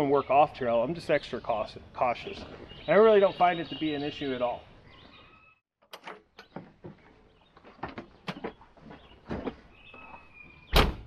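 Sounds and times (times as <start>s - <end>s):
cab door slamming: 10.7s - 11.0s.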